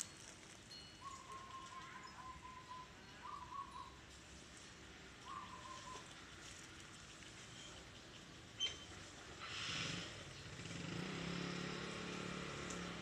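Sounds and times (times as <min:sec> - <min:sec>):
faint whistled bird call: 0:01.0 - 0:04.0, 0:05.2 - 0:06.1, 0:08.6 - 0:08.9.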